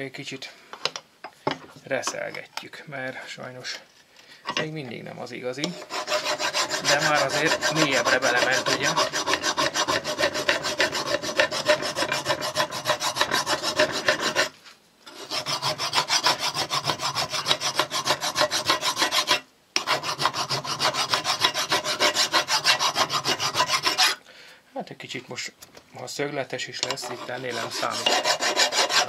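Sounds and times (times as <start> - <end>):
hand file rasping on steel: 5.6 - 24.2, 26.8 - 29.0.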